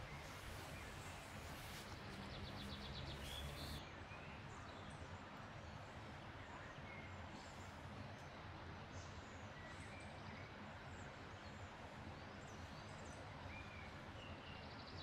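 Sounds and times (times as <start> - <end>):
background hiss: 0.0 - 3.8
faint bird chirps: 0.0 - 3.8.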